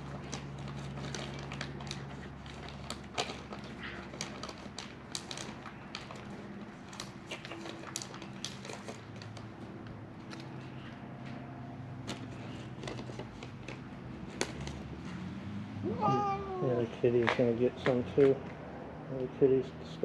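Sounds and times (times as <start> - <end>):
cat chewing jerky: 0.0 - 9.5.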